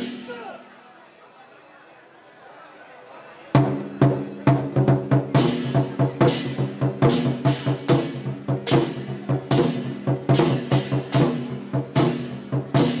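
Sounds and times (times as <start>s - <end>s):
war drums beating: 3.6s - 13.0s.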